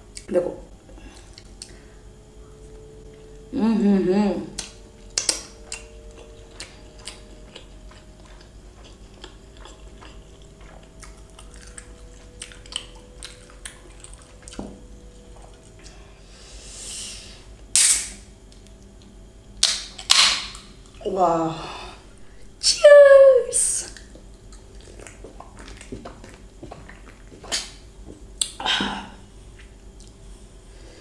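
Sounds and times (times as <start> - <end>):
can tab popping: 17.8 - 18.2
mouth clicks of chewing: 23.9 - 27.8.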